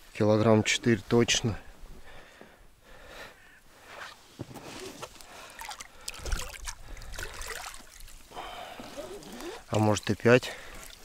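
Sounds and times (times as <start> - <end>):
water splashing and dripping: 5.2 - 8.4, 9.2 - 11.0.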